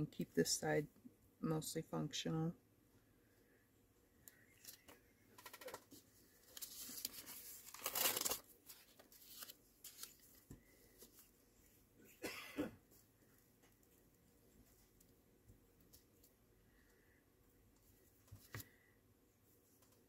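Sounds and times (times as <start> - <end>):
book pages rustling: 4.6 - 11.4, 18.2 - 18.8.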